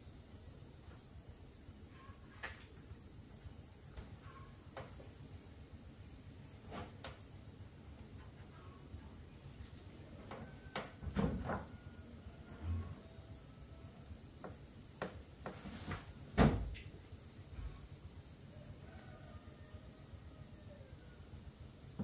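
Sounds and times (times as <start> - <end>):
high insect drone: 0.0 - 22.0.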